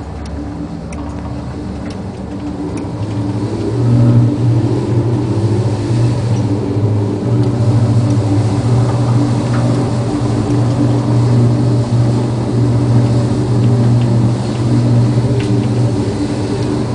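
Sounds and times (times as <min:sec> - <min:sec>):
low steady drone: 0:00.0 - 0:16.9
sea noise: 0:00.0 - 0:16.9
wind rushing: 0:00.0 - 0:16.9.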